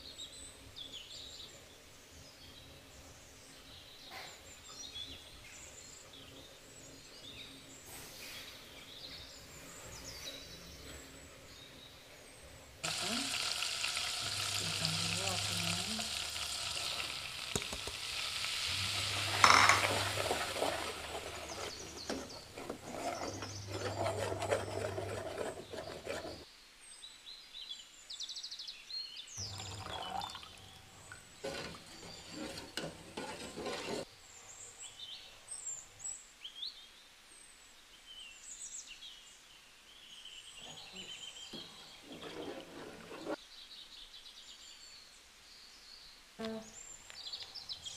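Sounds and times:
butter sizzling in a saucepan: 0:12.8 - 0:26.4, 0:29.4 - 0:34.1
spoon scraping a pot: 0:18.9 - 0:26.4, 0:31.4 - 0:34.1, 0:41.6 - 0:43.4.

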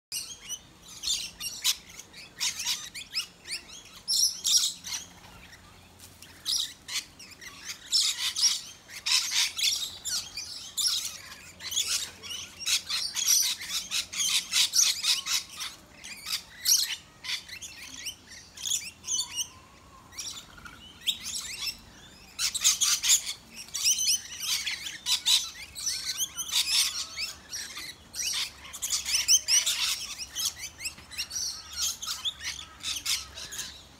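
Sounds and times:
lorikeets chattering and calling: 0:00.1 - 0:33.9.

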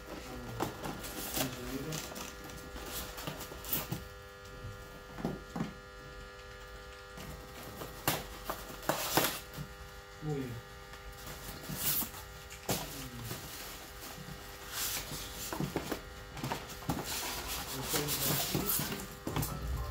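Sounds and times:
electrical hum: 0:00.0 - 0:19.9.

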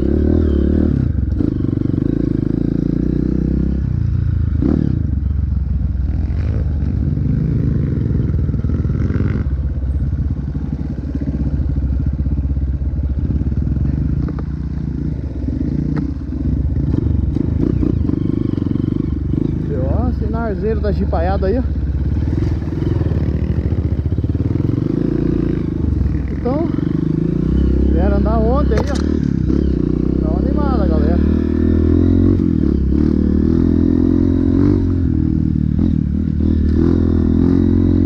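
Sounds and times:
dirt bike engine revving: 0:00.0 - 0:05.3, 0:05.9 - 0:38.0.

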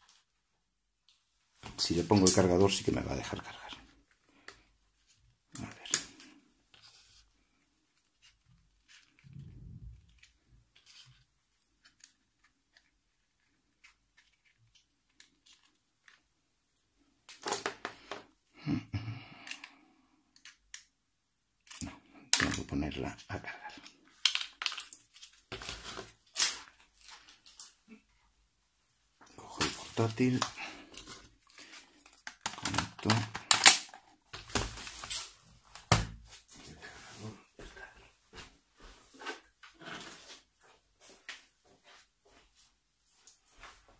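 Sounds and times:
plastic clicking and rustling: 0:29.6 - 0:36.0.

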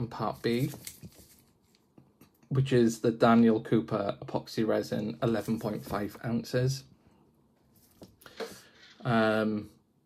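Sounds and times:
soft rustles: 0:00.2 - 0:01.9, 0:07.6 - 0:08.2.

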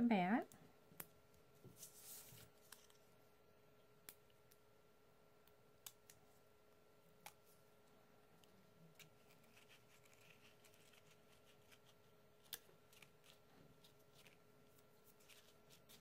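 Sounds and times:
paper rustling: 0:01.6 - 0:03.0, 0:09.0 - 0:16.0.

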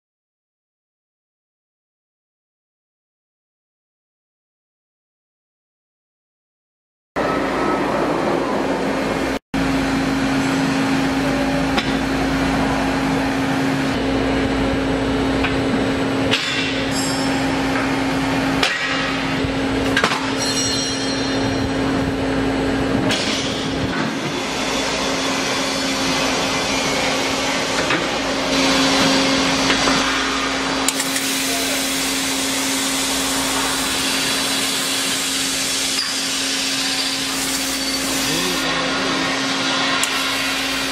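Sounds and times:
steady machine hum: 0:07.2 - 0:40.9
sharp metal clanks: 0:20.0 - 0:21.7
drill cutting steel hiss: 0:30.9 - 0:38.7, 0:40.0 - 0:40.9.

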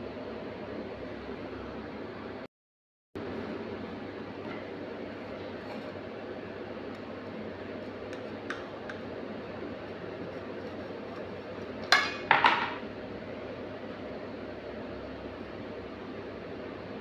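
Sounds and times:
tableware clattering on a plate: 0:11.9 - 0:12.8.

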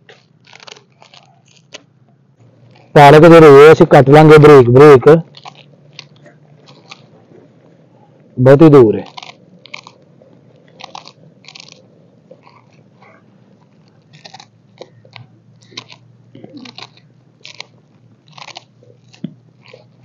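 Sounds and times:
leaves snapping crisply: 0:00.0 - 0:01.9, 0:05.2 - 0:07.1, 0:08.8 - 0:20.0.

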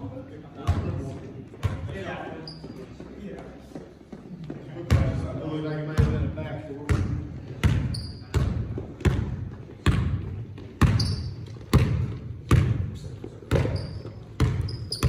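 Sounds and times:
basketball dribbling on hardwood: 0:06.9 - 0:15.0.

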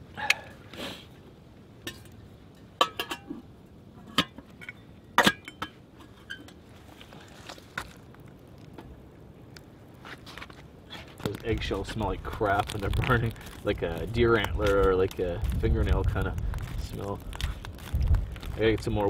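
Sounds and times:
metal cookware clinking: 0:02.8 - 0:03.4.

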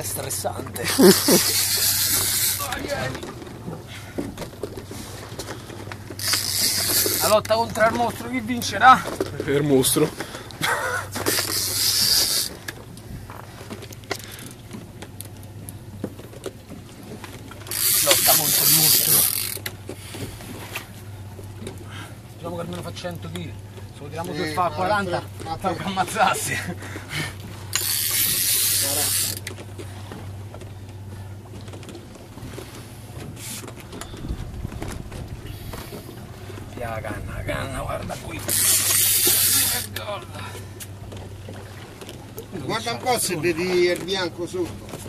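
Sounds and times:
fishing reel clicks and knocks: 0:01.2 - 0:02.8, 0:06.0 - 0:07.5, 0:11.2 - 0:12.8, 0:17.6 - 0:19.9, 0:27.7 - 0:29.6, 0:38.4 - 0:40.0.

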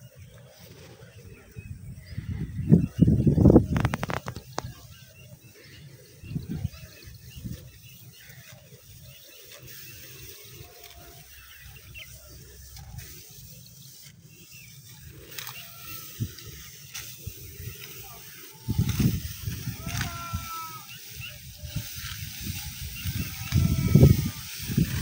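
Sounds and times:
faint chirps: 0:00.0 - 0:25.0
clicks and rustles: 0:03.7 - 0:04.8.

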